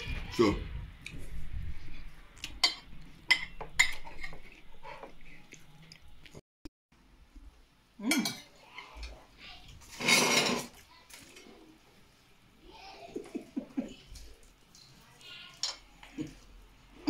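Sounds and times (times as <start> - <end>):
cutlery clinking on plates: 2.6 - 5.1.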